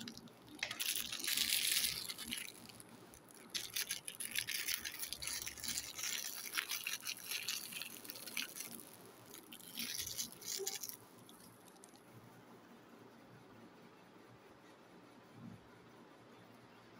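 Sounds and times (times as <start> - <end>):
plastic wrapper crinkling: 0.0 - 12.0.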